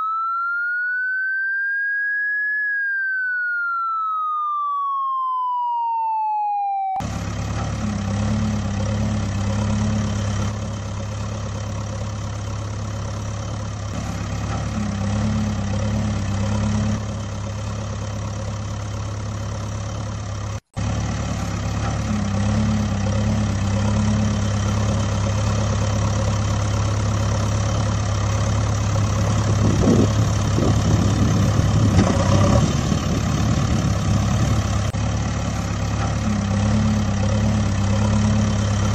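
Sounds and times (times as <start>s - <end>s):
falling electronic tone: 0.0s - 7.1s
truck engine running: 7.0s - 38.9s.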